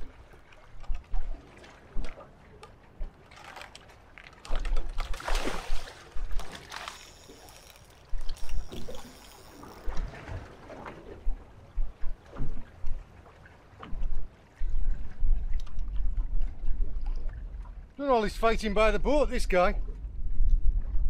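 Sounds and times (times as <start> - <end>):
water splashing around boat: 0.0 - 21.0
wind on microphone: 13.8 - 17.9, 19.8 - 21.0.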